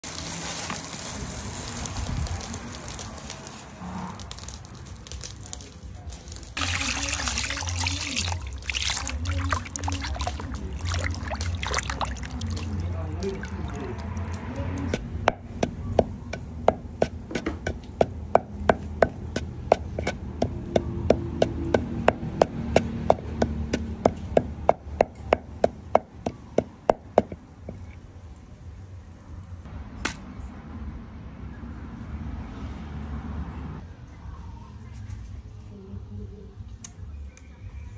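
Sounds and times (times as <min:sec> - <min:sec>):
water pouring and splashing: 0:00.0 - 0:28.5
pestle pounding in wooden mortar: 0:06.6 - 0:27.9.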